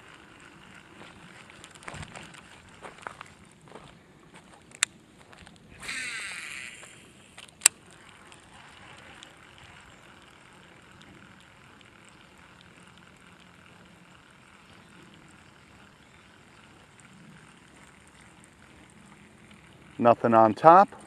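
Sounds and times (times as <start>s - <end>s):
fishing reel whirring: 0.0s - 3.7s, 4.6s - 21.0s
reel click: 5.5s - 16.8s
fishing line hissing off reel: 5.7s - 20.0s.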